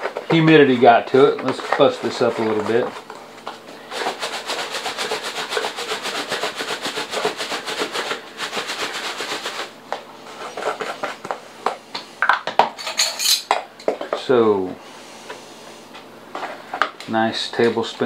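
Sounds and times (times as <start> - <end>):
scraping rub on paper plate: 1.0 - 3.0, 3.9 - 11.3.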